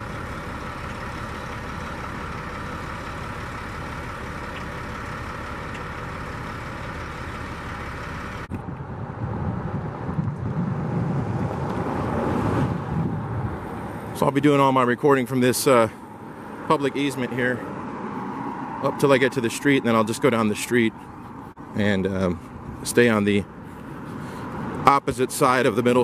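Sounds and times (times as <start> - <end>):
diesel truck engine idling: 0.0 - 8.5, 13.0 - 26.0
uneven low rumble: 8.5 - 13.8.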